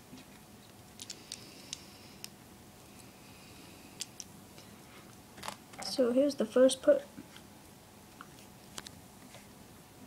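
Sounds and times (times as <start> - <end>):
plastic bricks clicking together: 1.0 - 1.4.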